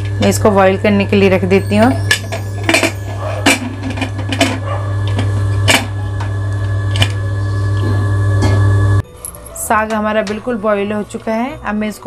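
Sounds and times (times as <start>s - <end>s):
steady low hum: 0.0s - 12.0s
metallic lid clanks: 1.9s - 5.9s.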